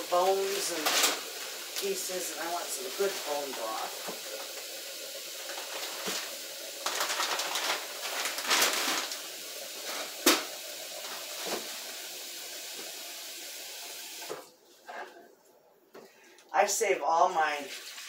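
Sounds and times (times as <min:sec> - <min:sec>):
plastic bag crinkling: 0:00.5 - 0:01.9, 0:05.4 - 0:09.4.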